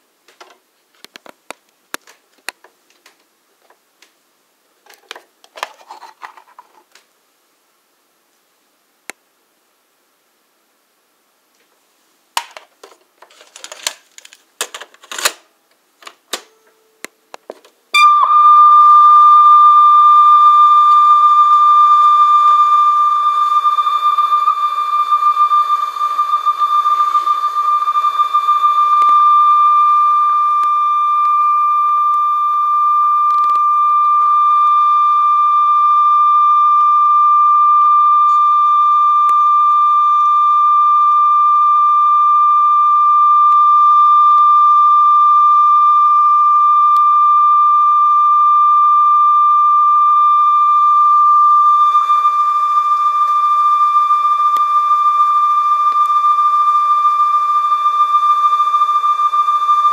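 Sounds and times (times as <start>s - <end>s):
steady sine test tone: 16.0s - 59.9s.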